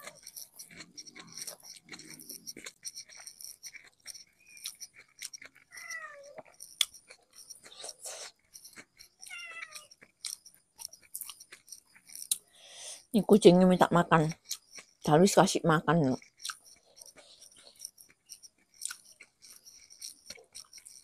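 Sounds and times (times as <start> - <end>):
person chewing and lip-smacking: 0.0 - 12.6, 14.2 - 15.1, 16.0 - 21.0
cat meowing: 5.7 - 6.5, 9.2 - 9.9.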